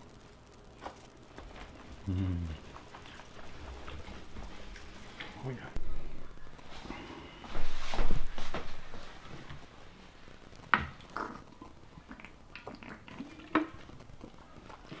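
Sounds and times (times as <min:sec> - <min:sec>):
eating noises: 0:10.7 - 0:15.0.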